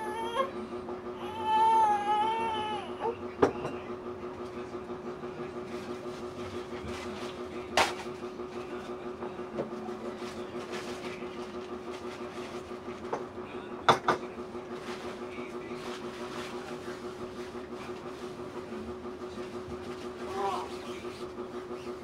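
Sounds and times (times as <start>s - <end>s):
household hum: 0.0s - 22.0s.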